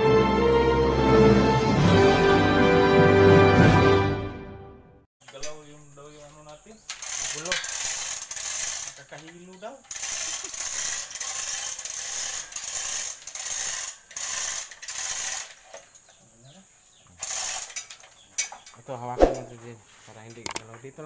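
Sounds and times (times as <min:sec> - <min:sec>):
ratchet clicking: 0:06.3 - 0:15.9, 0:17.2 - 0:18.5, 0:20.4 - 0:20.6
chain rattling through hoist: 0:06.3 - 0:16.0, 0:17.2 - 0:18.7.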